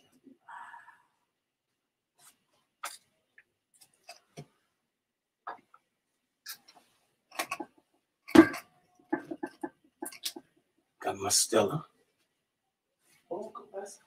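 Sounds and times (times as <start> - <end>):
glass bottle set down: 8.3 - 9.6
objects set down on table: 8.3 - 9.7.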